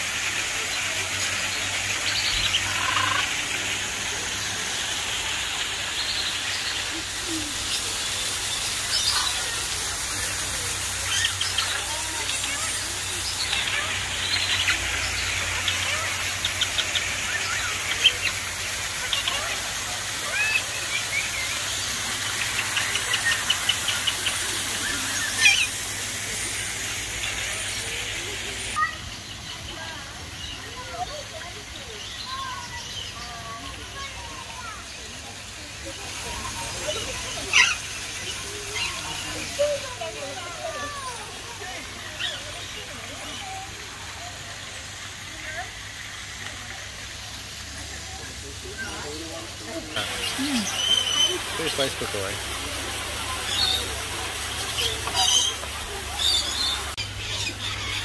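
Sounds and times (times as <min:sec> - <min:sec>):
steady hiss: 0:00.0 - 0:28.8, 0:32.2 - 0:58.0
waterfall splashing into pond: 0:00.0 - 0:58.0
birds chirping: 0:00.5 - 0:44.7, 0:47.0 - 0:58.0.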